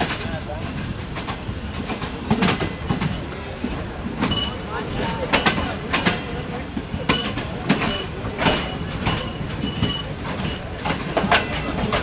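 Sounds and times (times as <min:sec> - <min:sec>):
train rumble: 0:00.0 - 0:12.0
train wheels clacking over rail joints: 0:00.0 - 0:12.0
train wheels squealing: 0:04.3 - 0:05.6, 0:07.0 - 0:10.7.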